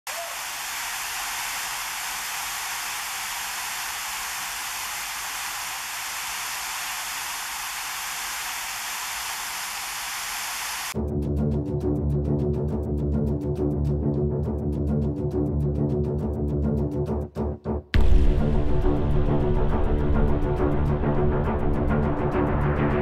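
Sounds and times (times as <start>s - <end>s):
waterfall rushing: 0.1s - 11.0s.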